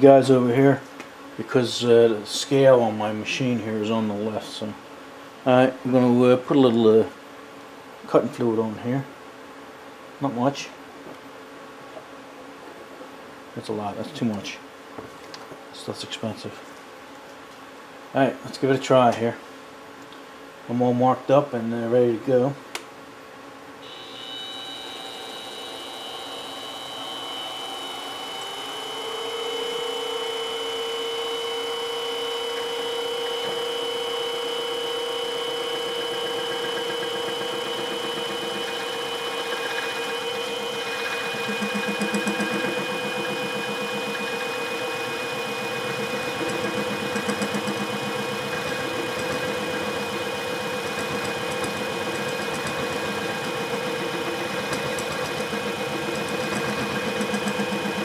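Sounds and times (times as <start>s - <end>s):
end mill cutting metal: 23.8s - 58.0s
milling machine motor whining: 23.8s - 58.0s.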